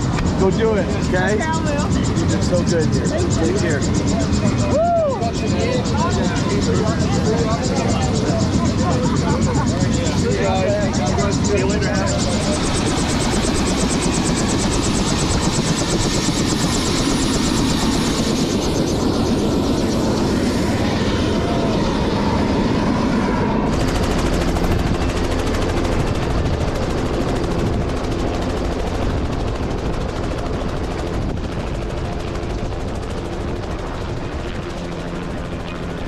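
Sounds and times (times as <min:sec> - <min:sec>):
helicopter engine and rotor: 0:00.0 - 0:36.0.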